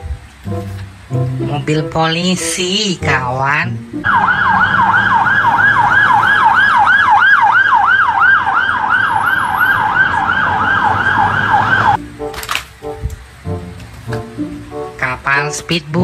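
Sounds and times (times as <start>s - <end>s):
police siren yelping: 4.0s - 12.0s.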